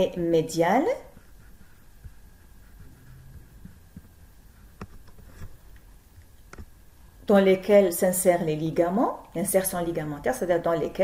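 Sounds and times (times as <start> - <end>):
low room hum and rumble: 0.0 - 11.0.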